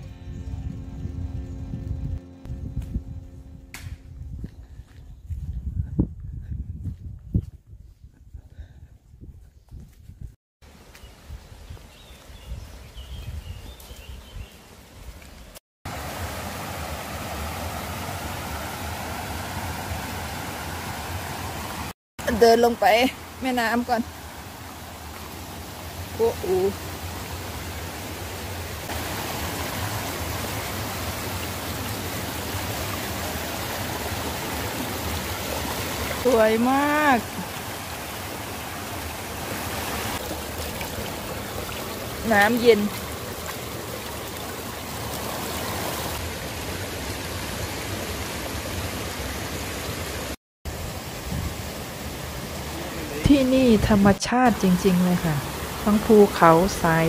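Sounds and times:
stream rushing over stones: 0:15.9 - 0:53.8, 0:54.4 - 0:57.0.

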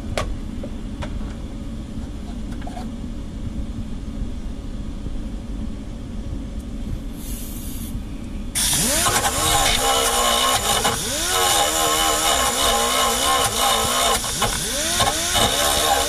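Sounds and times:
air hiss: 0:07.1 - 0:08.0, 0:08.6 - 0:09.4
die grinder whining: 0:08.6 - 0:16.0.

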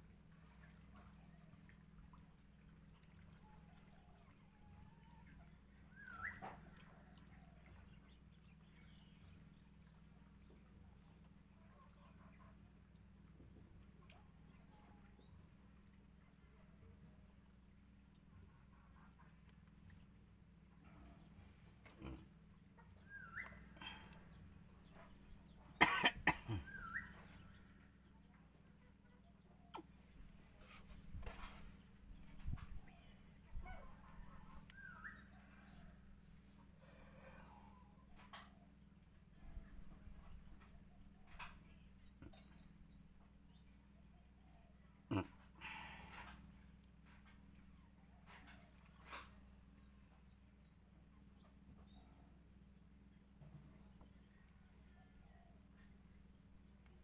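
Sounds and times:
low steady hum: 0:00.0 - 0:57.0
person coughing loudly: 0:25.8 - 0:26.8.

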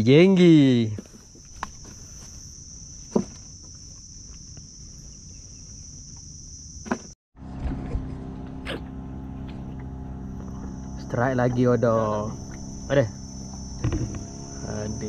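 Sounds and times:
insects droning: 0:00.0 - 0:15.0
low steady hum: 0:07.4 - 0:15.0.

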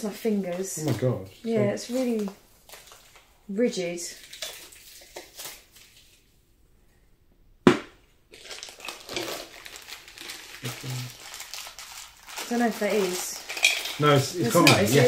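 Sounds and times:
packaging crinkling and rustling: 0:01.9 - 0:03.3, 0:04.1 - 0:06.2, 0:08.3 - 0:15.0.

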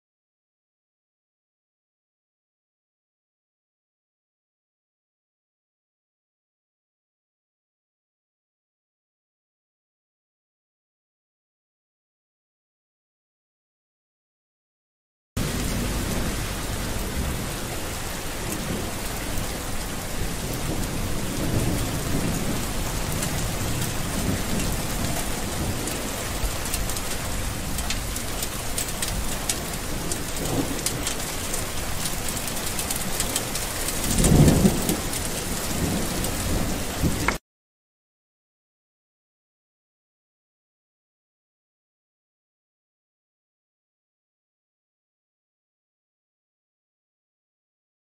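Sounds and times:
steady rain with drop ticks: 0:15.4 - 0:37.4
thunder rumbling: 0:15.4 - 0:37.4.

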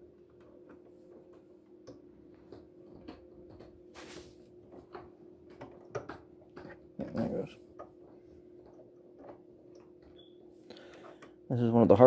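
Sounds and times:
short rustle: 0:04.0 - 0:04.4.

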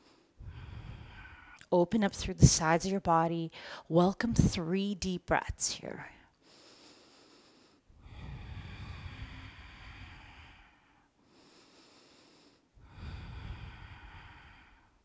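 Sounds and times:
woman breathing deeply: 0:00.0 - 0:01.6, 0:03.5 - 0:03.9, 0:06.4 - 0:15.0.

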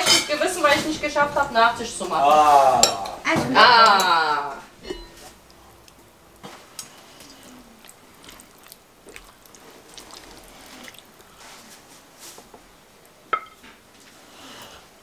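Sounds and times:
ladle stirring thick stew: 0:04.8 - 0:15.0.

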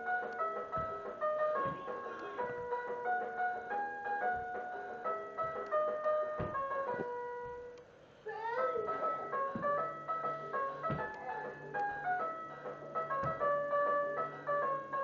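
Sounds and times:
toy piano electronic tune: 0:00.0 - 0:07.8, 0:08.4 - 0:15.0
soft thumps: 0:00.3 - 0:07.6, 0:08.8 - 0:12.2, 0:13.0 - 0:13.7.

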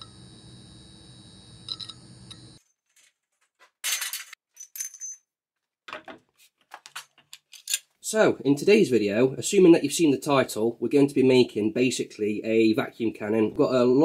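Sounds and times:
steady hum: 0:00.0 - 0:02.6
metallic clinks and scrapes: 0:03.8 - 0:05.3.

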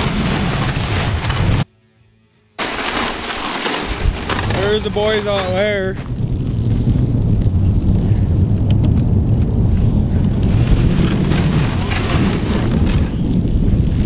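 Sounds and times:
wind buffeting microphone: 0:04.0 - 0:14.0.

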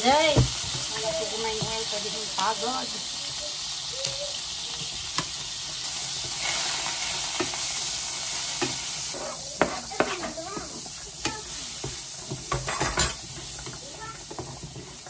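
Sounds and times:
butter and oil sizzling in a pan: 0:00.0 - 0:15.0
spatula tapping a pan: 0:08.6 - 0:15.0.

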